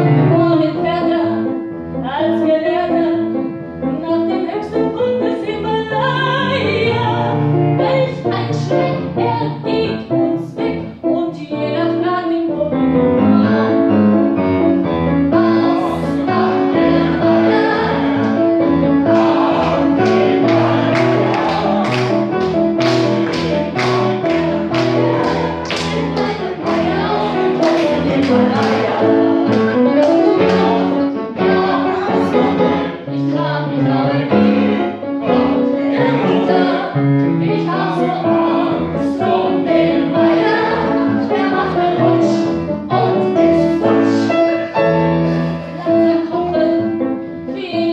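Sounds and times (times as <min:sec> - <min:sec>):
piano chords: 0:00.0 - 0:47.9
woman singing: 0:00.2 - 0:01.4, 0:02.0 - 0:03.2, 0:04.0 - 0:13.8, 0:45.8 - 0:47.9.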